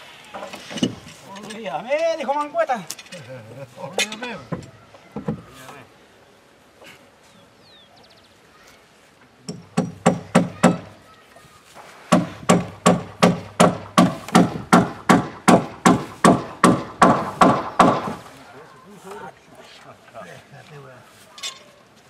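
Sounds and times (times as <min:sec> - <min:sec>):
hammer blows on wooden hull: 0:09.4 - 0:11.0, 0:12.1 - 0:18.2.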